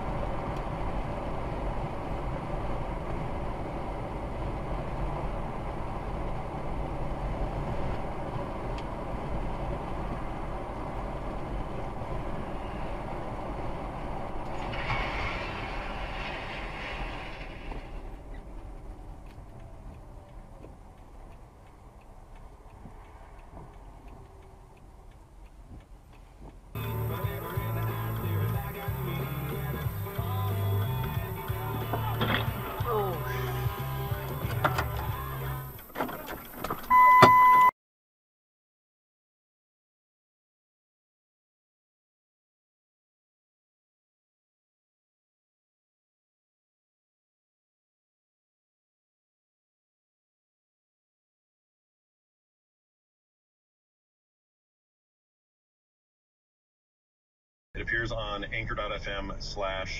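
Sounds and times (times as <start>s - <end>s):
car road and engine rumble: 0.0s - 37.7s, 57.8s - 59.9s
music: 26.8s - 35.8s.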